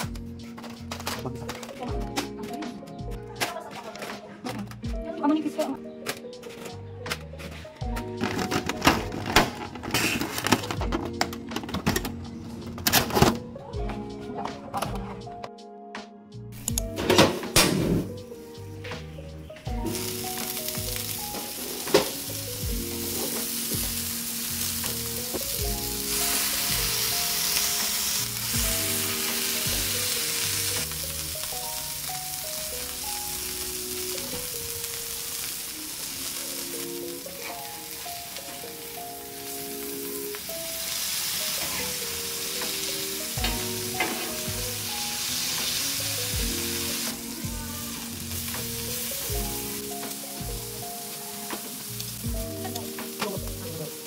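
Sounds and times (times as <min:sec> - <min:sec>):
soft background music: 0:00.0 - 0:54.0
meat sizzling on a griddle: 0:19.7 - 0:54.0.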